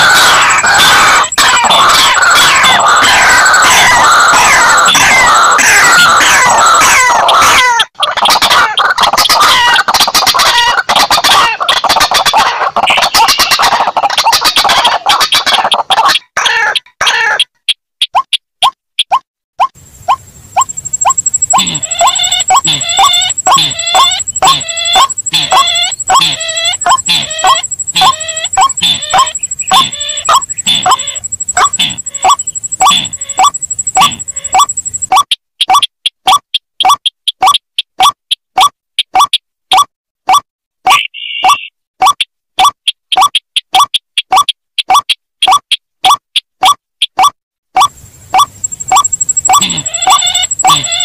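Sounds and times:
rapid clucking bird calls: 0.0 - 51.0
thin steady high tone: 20.6 - 35.1, 48.4 - 51.0.

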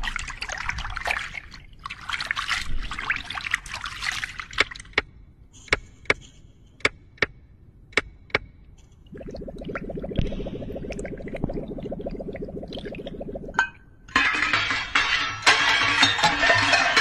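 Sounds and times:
trickling crackling water effect: 9.1 - 13.6.

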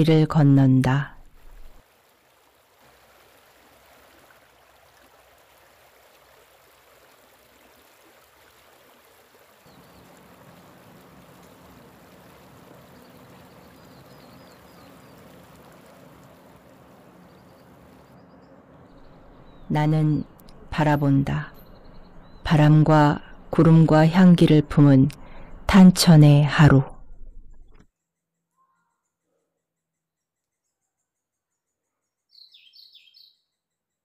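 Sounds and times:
shallow stream rushing: 1.3 - 25.8.

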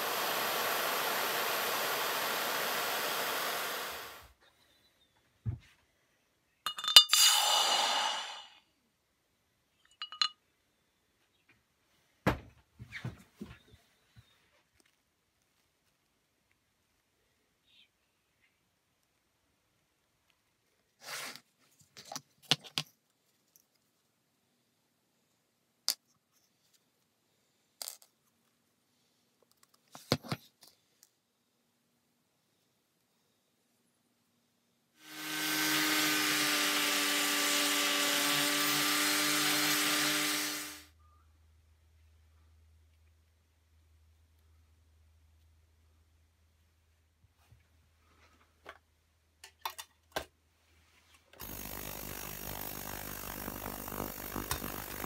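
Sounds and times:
ultrasonic cleaner buzzing hiss: 0.0 - 4.4, 35.0 - 40.9, 51.4 - 55.0
glassware clicking and knocking: 6.7 - 7.2, 9.9 - 10.4
metal parts clinking on glass: 6.7 - 7.3, 9.9 - 10.4.

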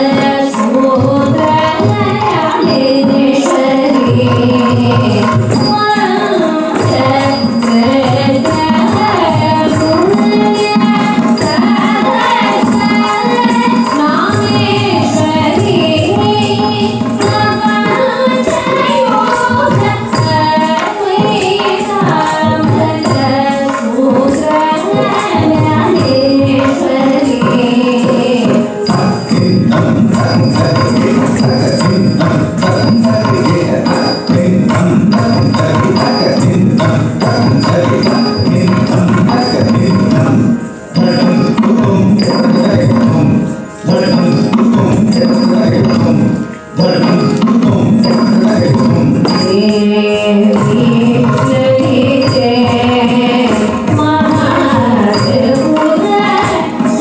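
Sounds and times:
dance music with drums: 0.0 - 57.0.

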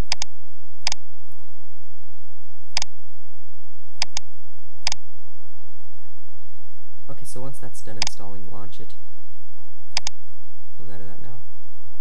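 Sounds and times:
computer mouse clicks: 0.0 - 0.3, 4.0 - 5.0, 8.0 - 8.2, 9.9 - 10.2
low hum: 0.0 - 12.0.

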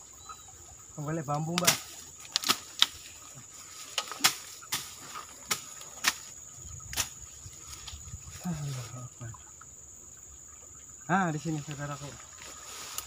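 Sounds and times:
twigs snapping: 1.3 - 3.2, 3.8 - 6.3, 6.9 - 8.0
footsteps through dry undergrowth: 1.6 - 9.1, 11.4 - 13.0.

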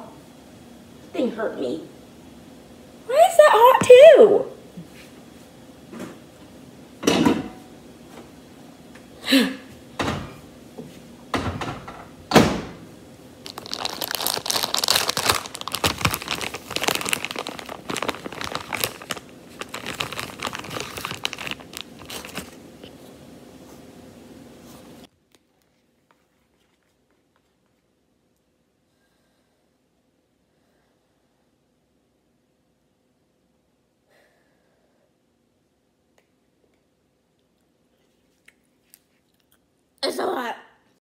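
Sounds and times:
crinkling and rustling: 13.4 - 23.9, 24.7 - 27.9.

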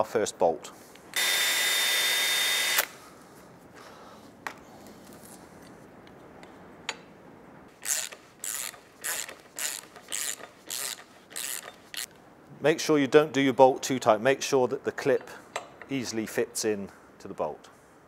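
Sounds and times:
ratchet wrench ratcheting: 7.8 - 12.1.

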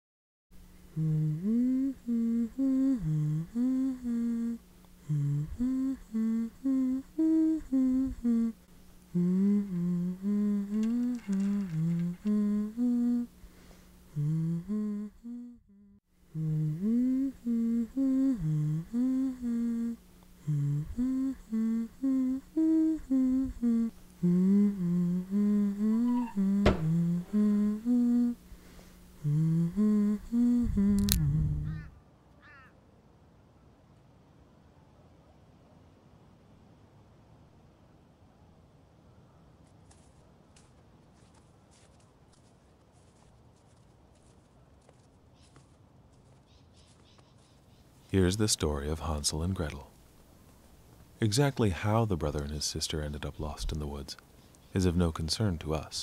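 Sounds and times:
person humming a wavering melody: 0.9 - 13.4, 14.1 - 28.5, 29.2 - 31.9
low held drone: 0.9 - 13.5, 16.4 - 28.5.

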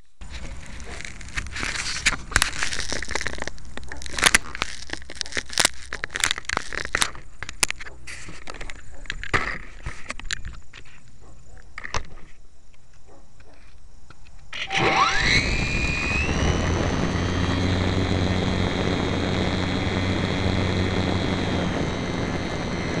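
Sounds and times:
handling noise crackling: 0.2 - 12.3
microphone hiss: 13.8 - 23.0.

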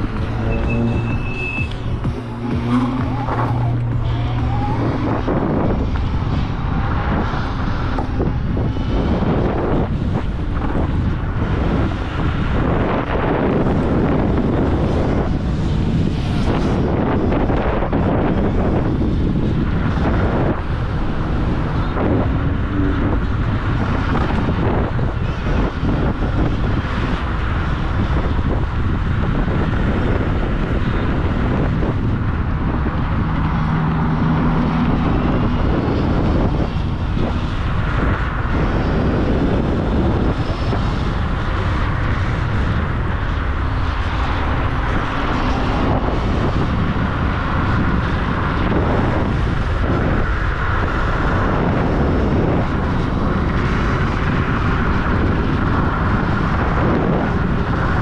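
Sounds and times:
electric scooter motor and road noise: 0.0 - 58.0
wind on microphone: 0.0 - 58.0.

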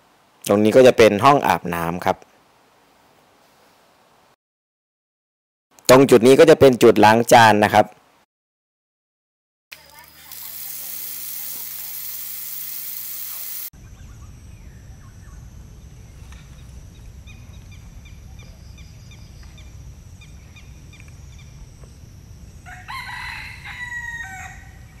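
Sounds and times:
small bird chirping: 9.9 - 22.0
low steady rumble: 13.8 - 22.7
rooster crowing: 22.6 - 25.0.

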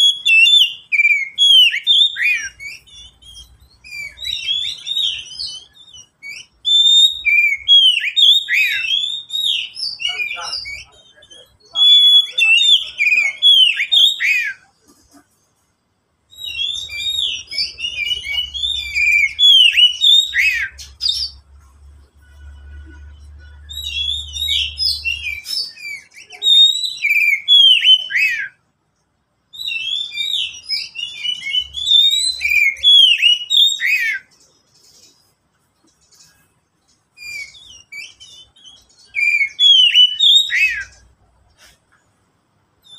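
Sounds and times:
bird whistling and chirping: 0.0 - 14.7, 16.3 - 21.4, 23.2 - 28.6, 29.5 - 35.3, 37.2 - 41.8.

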